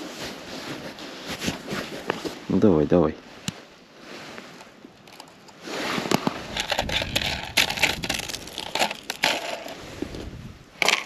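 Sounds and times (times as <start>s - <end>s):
clothing rustling: 0.0s - 2.5s
ice and snow crunching: 4.0s - 11.0s.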